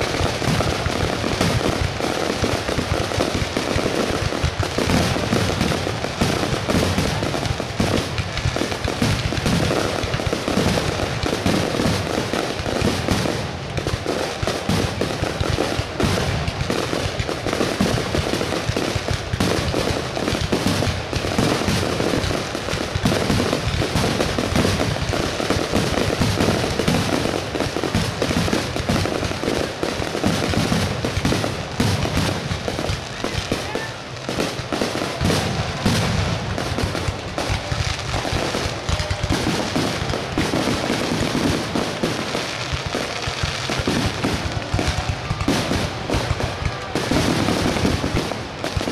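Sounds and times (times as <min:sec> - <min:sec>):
fireworks bursting and crackling: 0:00.0 - 0:48.9.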